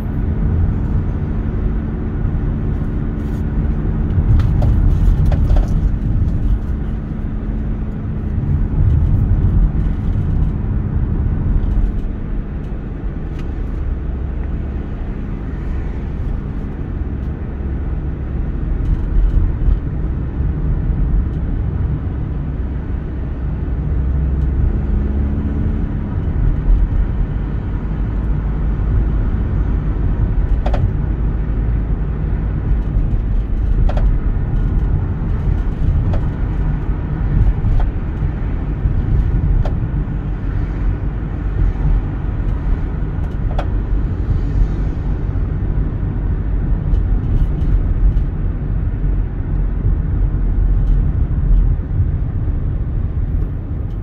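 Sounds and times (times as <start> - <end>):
car engine and tyre rumble: 0.0 - 54.0
faint engine hum: 0.0 - 54.0.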